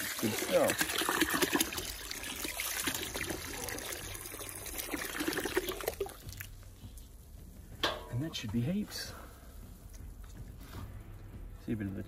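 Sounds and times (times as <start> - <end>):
hose water splashing into a bin: 0.0 - 6.6.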